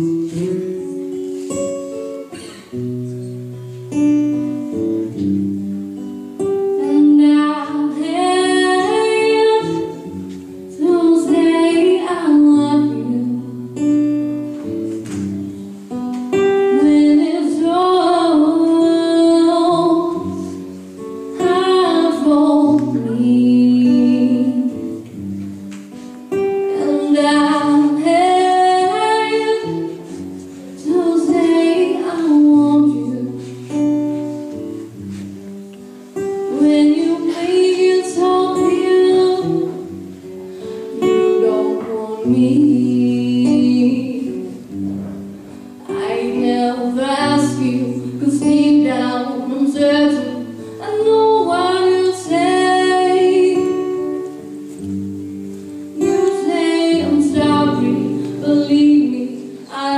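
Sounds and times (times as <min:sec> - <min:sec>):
acoustic guitar: 0:00.0 - 0:59.9
girl singing: 0:06.0 - 0:14.7, 0:16.3 - 0:25.1, 0:26.4 - 0:34.5, 0:36.2 - 0:44.8, 0:45.5 - 0:59.9.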